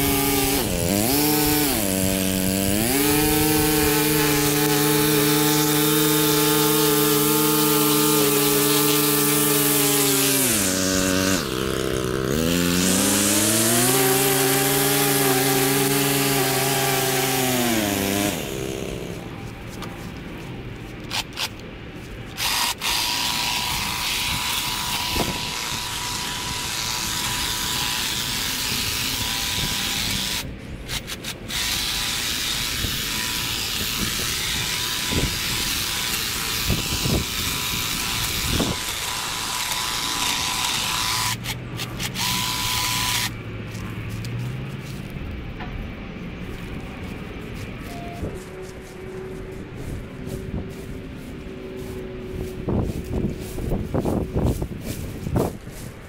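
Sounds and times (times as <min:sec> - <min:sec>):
hedge trimmer running: 0:00.0 - 0:19.4, 0:22.3 - 0:43.8.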